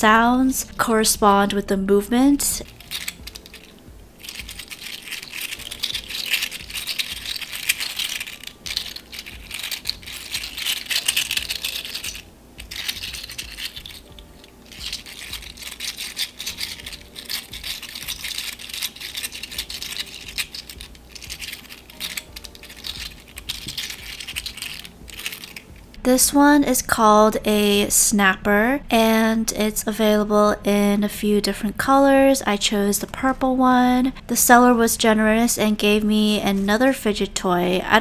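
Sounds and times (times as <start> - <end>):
plastic toy segments clicking: 2.6 - 25.8.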